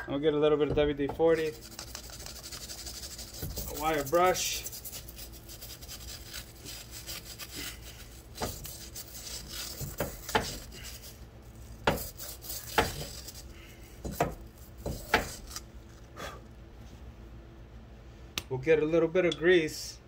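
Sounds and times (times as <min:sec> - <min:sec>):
wire brush scrubbing metal: 0:01.2 - 0:15.6.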